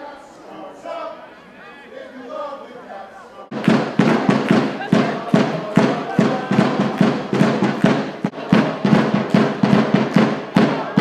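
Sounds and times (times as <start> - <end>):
music with fast steady beat: 3.5 - 11.0.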